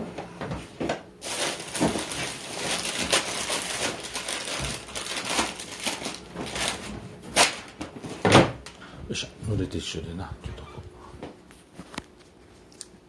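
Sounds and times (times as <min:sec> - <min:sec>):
crinkling and crackling: 0:01.2 - 0:08.1.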